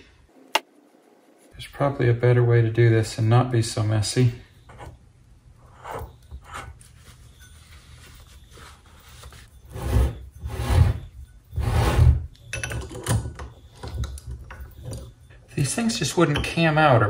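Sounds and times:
wrenches clinking and scraping on metal: 12.3s - 17.0s.

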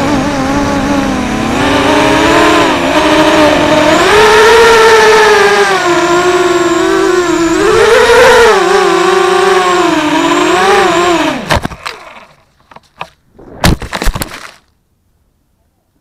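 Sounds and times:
quadcopter motors whining: 0.0s - 12.4s.

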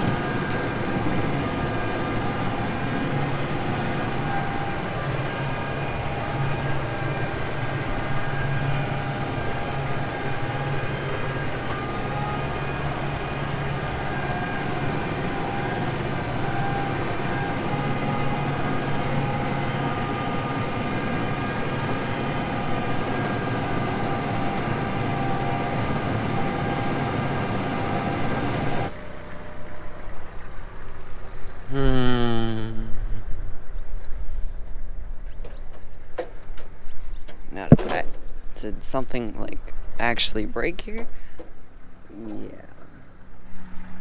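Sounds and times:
machinery whining: 0.0s - 32.9s
tractor engine drone: 0.0s - 44.0s.

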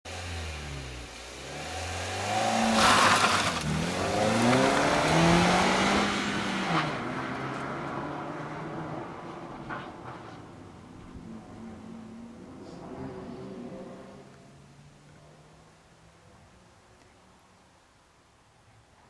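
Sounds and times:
car engine revving: 0.1s - 15.8s.

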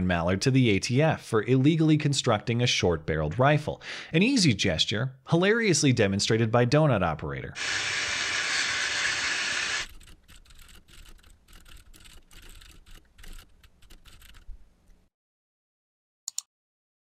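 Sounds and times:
power saw cutting metal: 7.6s - 9.9s
keyboard typing: 9.8s - 14.5s.

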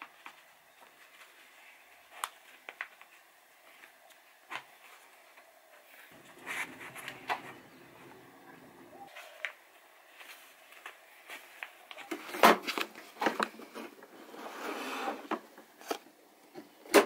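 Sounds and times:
paper rustling and crinkling: 6.1s - 9.2s.

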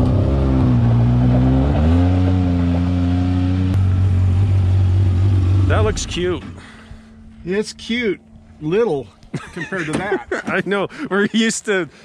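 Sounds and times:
vehicle engine idling: 3.6s - 9.3s.

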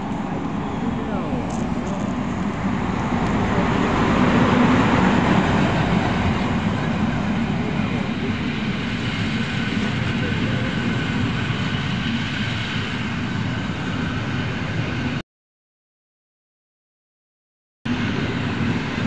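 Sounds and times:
train wheels on rails: 0.0s - 15.2s.

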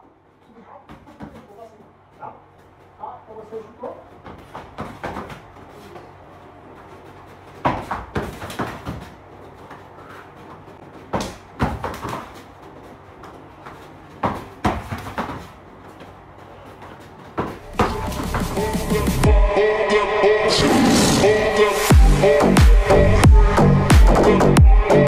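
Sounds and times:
stepping on floor mats: 4.0s - 18.6s.

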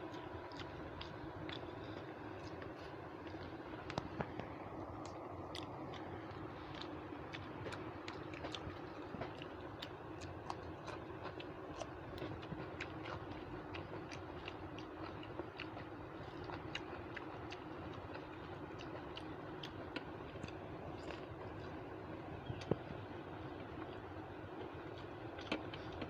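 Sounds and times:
chewing: 0.0s - 26.0s
steady low hum: 0.0s - 26.0s.

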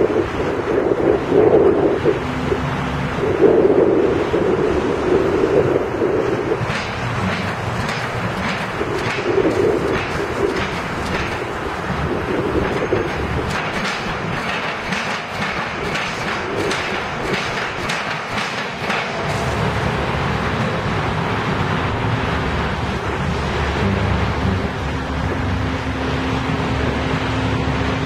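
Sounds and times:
piling rig machinery running: 0.0s - 28.0s
metal knocks clattering: 6.7s - 11.6s, 12.6s - 19.3s.

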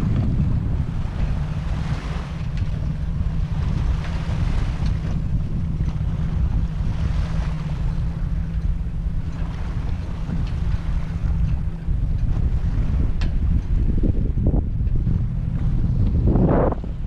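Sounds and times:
waves lapping on sandy shore: 0.0s - 8.6s, 12.4s - 13.2s
wind rumbling on microphone: 0.0s - 17.0s.

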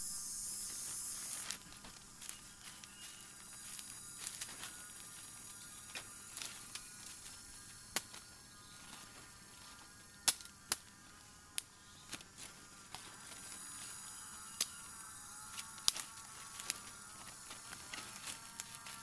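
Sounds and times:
thin high tones: 0.0s - 7.8s
dry twigs snapping: 0.7s - 10.9s, 11.5s - 19.0s.

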